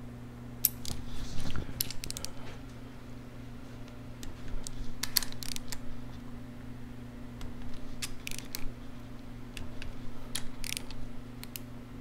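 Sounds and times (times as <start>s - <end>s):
steady low hum: 0.0s - 12.0s
wrench metallic clicks: 0.6s - 1.0s, 1.8s - 2.3s, 4.6s - 5.8s, 7.4s - 8.7s, 9.6s - 11.7s.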